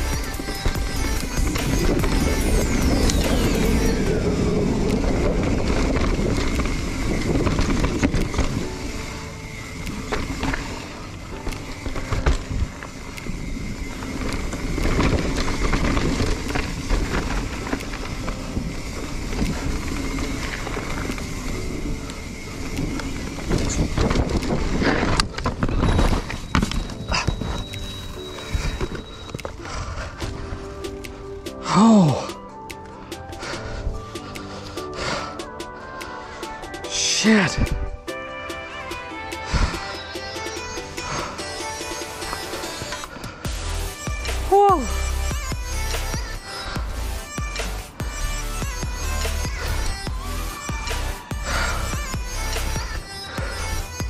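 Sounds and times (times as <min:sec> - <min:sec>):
bike rattling over bumps: 0:00.0 - 0:54.0
bike tyres on dirt: 0:00.0 - 0:54.0
wind on microphone: 0:12.2 - 0:29.0.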